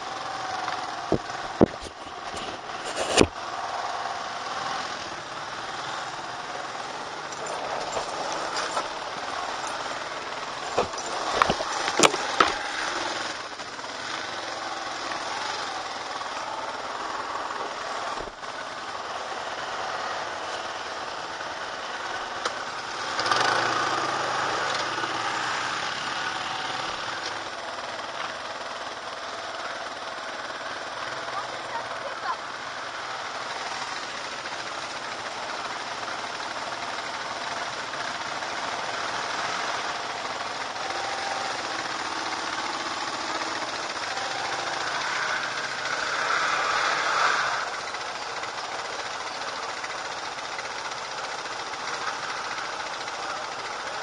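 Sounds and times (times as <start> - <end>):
quad bike engine running: 0.0 - 54.0
sharp knocks from bumps: 1.1 - 3.4, 10.6 - 12.8.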